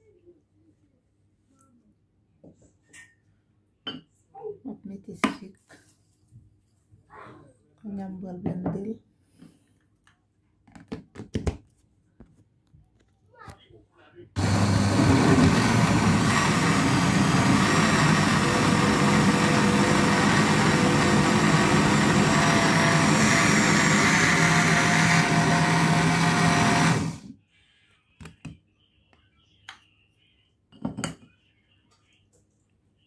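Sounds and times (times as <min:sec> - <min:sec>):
blender running: 0:14.4 - 0:27.3.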